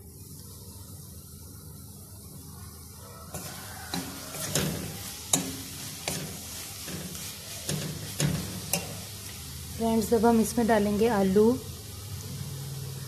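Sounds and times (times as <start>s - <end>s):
faint oil sizzle: 0.0s - 13.0s
metal spatula scraping a pan: 3.3s - 9.2s.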